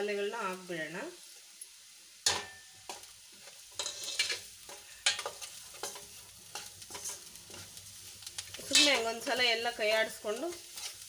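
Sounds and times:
onions frying in oil: 0.0 - 11.0
metal plate clinking on pan: 2.3 - 3.0, 3.8 - 4.4
spoon scraping metal pan: 2.3 - 9.4, 10.0 - 11.0.

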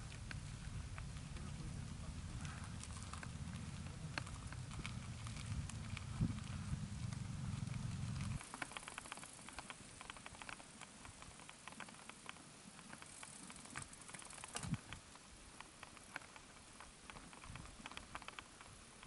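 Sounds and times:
tyres crunching on gravel: 0.0 - 10.0.

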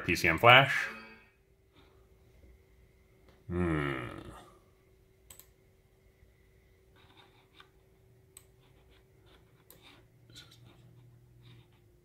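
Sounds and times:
faint hum: 0.0 - 12.0
computer mouse clicks: 5.3 - 5.6.

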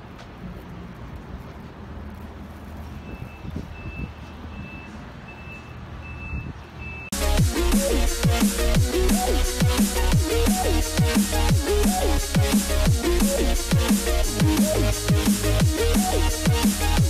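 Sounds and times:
low rumble of city traffic: 0.0 - 17.0
reversing beeper beeps: 3.0 - 7.2
electronic music with heavy drums: 7.1 - 17.0.

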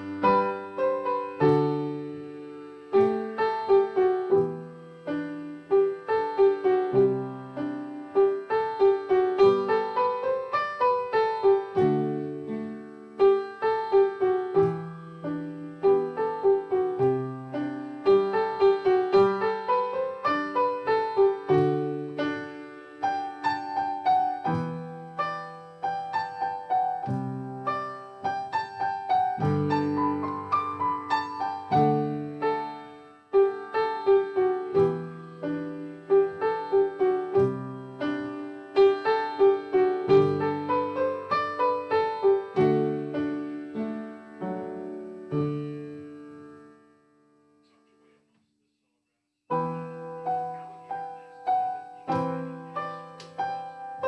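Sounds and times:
solo piano piece: 0.0 - 48.3, 49.5 - 54.0.

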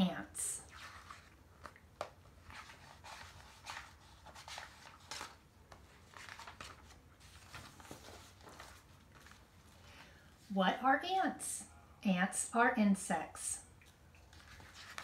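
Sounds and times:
low room hum: 0.0 - 15.0
book pages rustling: 0.6 - 10.2, 14.3 - 15.0.

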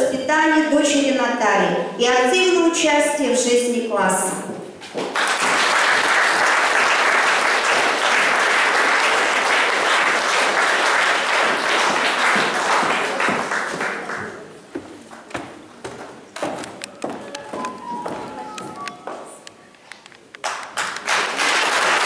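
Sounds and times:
audience applauding: 5.0 - 14.6, 16.4 - 19.2, 20.4 - 22.0.

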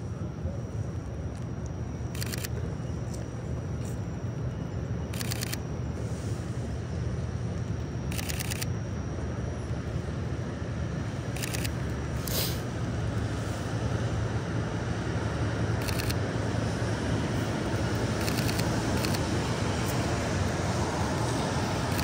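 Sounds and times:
street noise: 0.0 - 22.0
camera shutter clicking: 2.1 - 2.5, 5.1 - 5.6, 8.1 - 8.7, 11.4 - 12.4, 15.8 - 16.2, 18.2 - 19.2.

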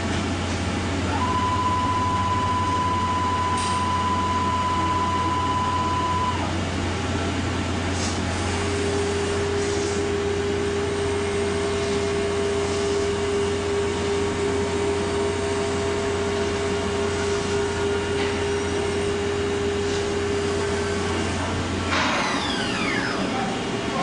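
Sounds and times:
machine hum and hiss: 0.0 - 24.0
machine spindle whine: 16.7 - 24.0.

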